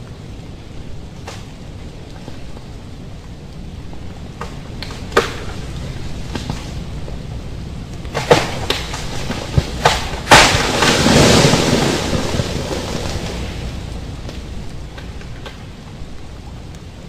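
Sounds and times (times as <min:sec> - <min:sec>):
rain: 0:00.0 - 0:17.0
thunder cracks and rumble: 0:10.2 - 0:14.8.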